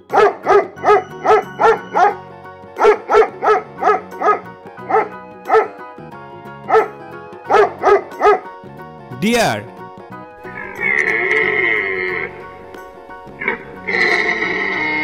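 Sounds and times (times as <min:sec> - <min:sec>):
background music: 0:00.0 - 0:15.0
dog barking: 0:00.1 - 0:02.2, 0:02.8 - 0:05.8, 0:06.7 - 0:08.5.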